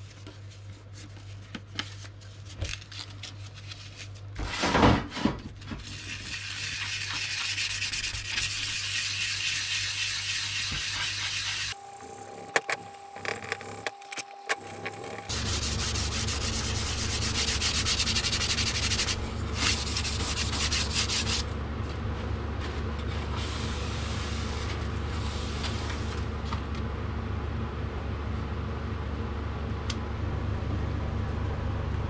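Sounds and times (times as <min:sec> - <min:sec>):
steady low hum: 0:05.6 - 0:32.0
tube being sanded by hand: 0:05.8 - 0:11.8, 0:15.2 - 0:21.5.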